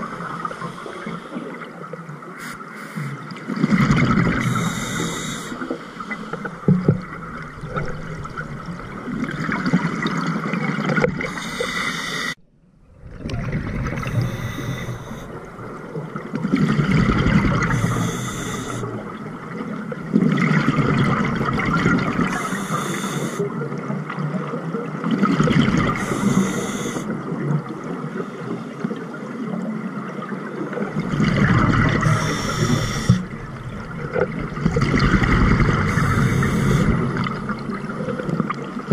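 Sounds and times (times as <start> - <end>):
regulator breathing hiss: 0.2 - 1.6, 2.4 - 3.2, 4.4 - 6.4, 11.3 - 12.4, 14.0 - 15.4, 17.7 - 19.0, 22.3 - 23.5, 26.0 - 27.1, 32.0 - 33.3, 35.9 - 37.1
bubbles gurgling underwater: 3.3 - 4.9, 6.1 - 11.4, 12.9 - 22.5, 23.6 - 26.5, 30.5 - 38.9.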